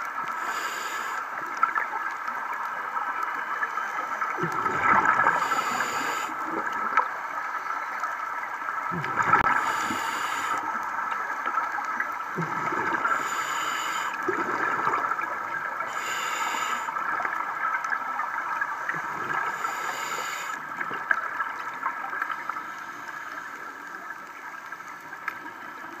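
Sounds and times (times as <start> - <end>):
steady hiss: 0.1 - 26.0
underwater regulator bubbles: 4.2 - 7.2, 8.8 - 18.0, 18.6 - 22.5.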